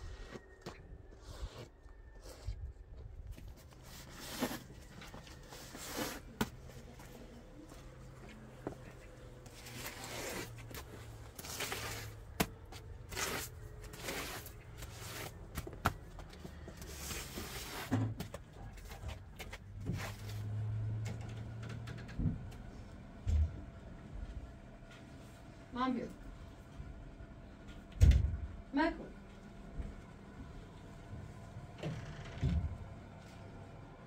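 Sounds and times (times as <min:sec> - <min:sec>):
broom sweeping snow: 0:09.6 - 0:12.2, 0:13.1 - 0:15.4, 0:16.9 - 0:17.9.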